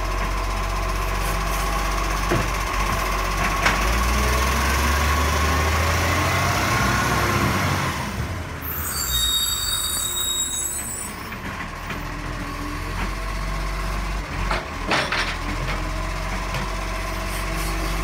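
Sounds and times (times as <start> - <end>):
diesel truck engine revving: 0.9 - 8.6.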